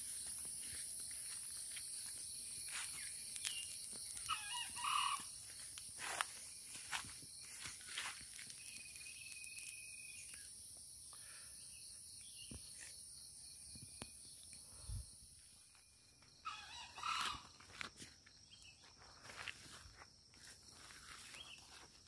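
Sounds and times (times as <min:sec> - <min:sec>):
rustling in undergrowth: 0:00.0 - 0:10.5, 0:18.9 - 0:22.0
insects droning: 0:00.0 - 0:22.0.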